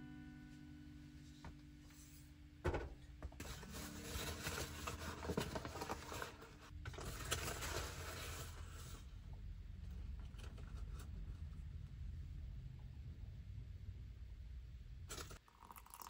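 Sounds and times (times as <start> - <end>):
paper bag crinkling: 3.4 - 8.8.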